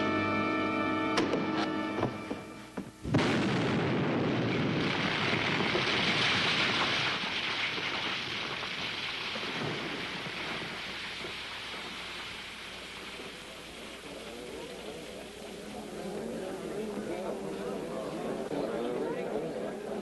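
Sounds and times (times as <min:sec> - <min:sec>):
explosion: 0:03.0 - 0:15.7
avalanche rushing noise: 0:03.0 - 0:18.0.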